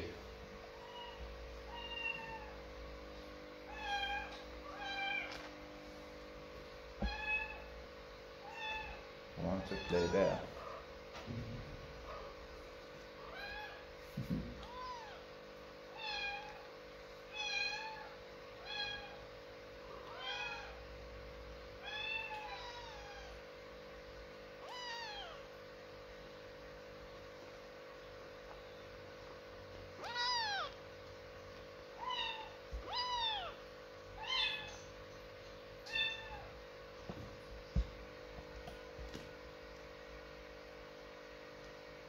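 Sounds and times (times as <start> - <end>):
kitten meowing: 0.8 - 2.6, 3.7 - 5.3, 7.0 - 7.7, 8.4 - 9.0, 9.6 - 10.4, 13.3 - 13.8, 14.6 - 15.2, 20.0 - 20.8, 21.8 - 23.4, 24.6 - 25.5, 30.0 - 30.8, 32.0 - 33.6, 34.2 - 34.9, 35.8 - 36.5.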